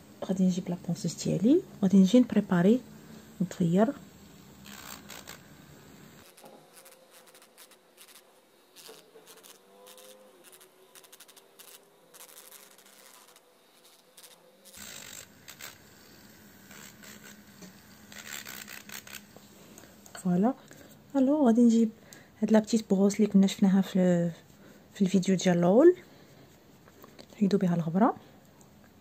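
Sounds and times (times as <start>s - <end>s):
electric nail file scratching: 3.9s - 19.4s.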